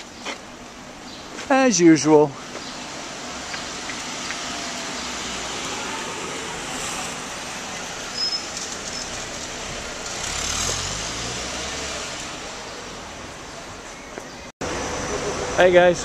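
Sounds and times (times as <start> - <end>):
traffic hum: 0.0 - 16.0
car driving past: 3.0 - 13.2.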